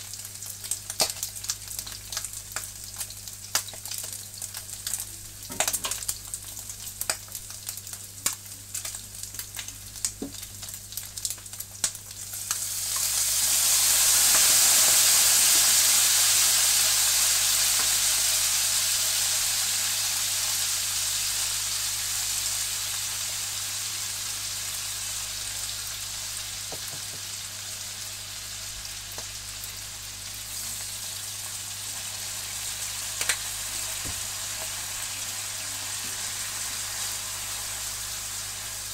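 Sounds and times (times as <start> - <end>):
fat crackling and popping: 0.0 - 13.1, 33.2 - 34.9
loud sizzling hiss: 0.0 - 38.9.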